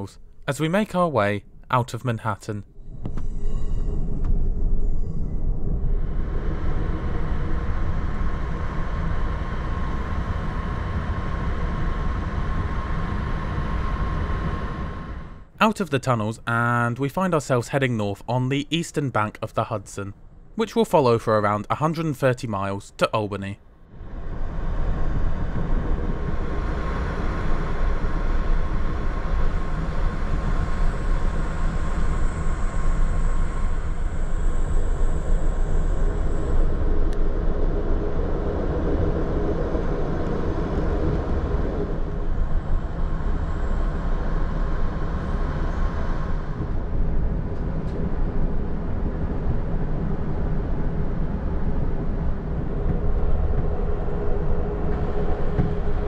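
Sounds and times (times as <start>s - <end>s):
faint high whine: 0.0s - 56.0s
train rumbling along track: 37.5s - 56.0s.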